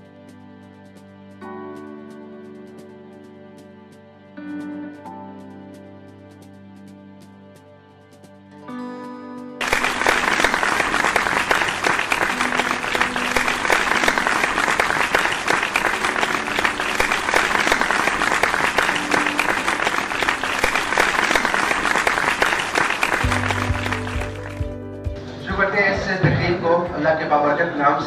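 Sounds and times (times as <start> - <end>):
audience applauding: 9.6 - 24.8
faint background music: 23.2 - 28.0.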